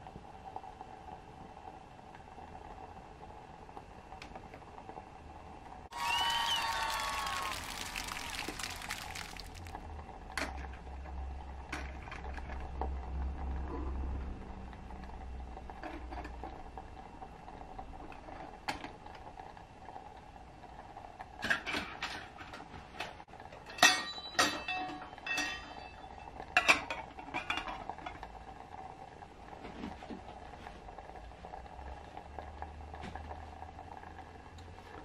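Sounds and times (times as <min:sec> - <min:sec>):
metal lid clinking on pot: 0:23.6 - 0:27.8.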